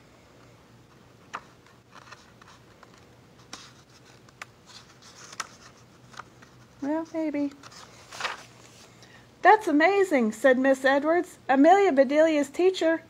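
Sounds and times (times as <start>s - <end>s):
book pages turning: 1.2s - 8.9s.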